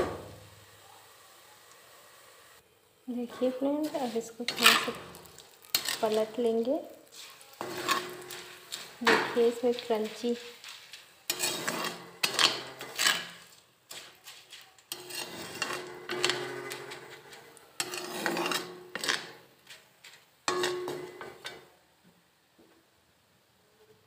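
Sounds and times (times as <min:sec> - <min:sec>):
metal spoon scraping a wok: 0:03.2 - 0:21.7.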